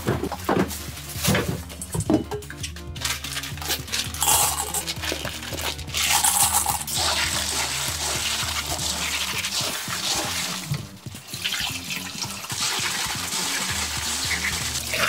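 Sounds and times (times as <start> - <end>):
background music: 0.0 - 15.0
shells clattering in steel bowl: 3.0 - 7.6
tap water running into bowl: 4.1 - 15.0.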